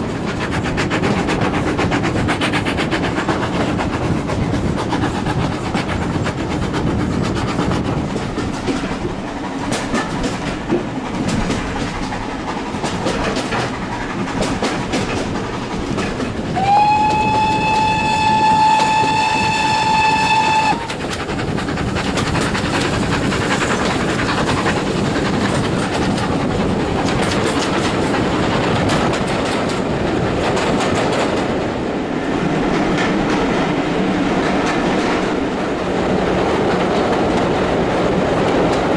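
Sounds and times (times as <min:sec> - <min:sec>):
train wheels clickety-clack on rails: 0:00.0 - 0:38.9
steam whistle blowing: 0:16.6 - 0:20.9.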